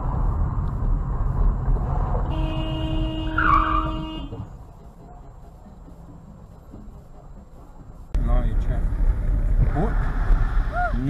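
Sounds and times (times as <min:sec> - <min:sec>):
engine and road rumble: 0:00.0 - 0:11.0
car horn: 0:02.2 - 0:04.5.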